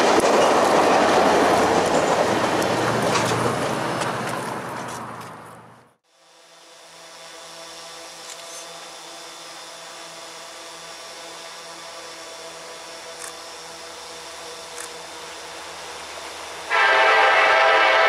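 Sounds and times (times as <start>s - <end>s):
diesel locomotives droning: 10.8s - 18.0s.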